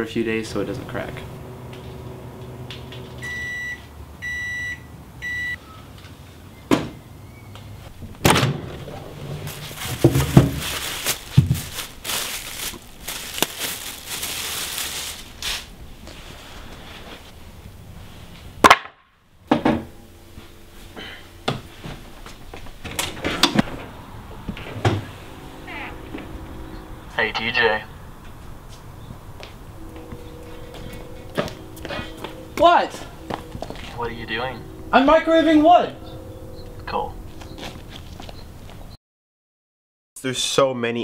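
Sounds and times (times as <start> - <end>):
microwave oven beeping: 0.9 - 5.8, 29.0 - 35.3.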